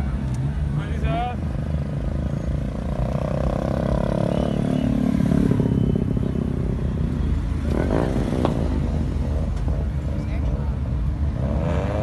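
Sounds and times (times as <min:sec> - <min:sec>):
car engines rumbling: 0:00.0 - 0:12.0.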